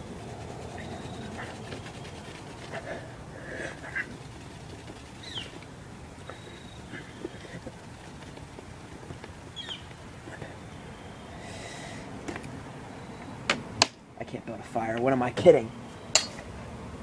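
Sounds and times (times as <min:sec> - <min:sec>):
bird chirping: 0:00.0 - 0:08.5, 0:09.5 - 0:11.8.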